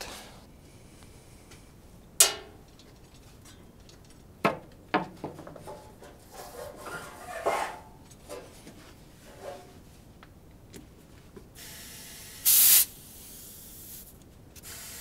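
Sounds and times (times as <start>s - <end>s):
knocks: 4.4s - 5.9s
rubbing and scraping: 5.3s - 9.9s.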